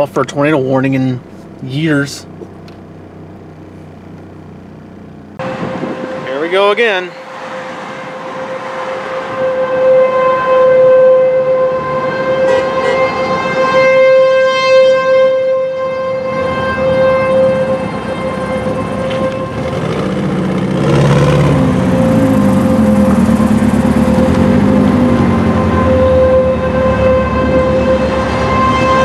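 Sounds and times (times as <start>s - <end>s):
passing vehicle engine drone: 0.0s - 14.2s, 16.3s - 29.0s
warning siren steady tone: 0.0s - 29.0s.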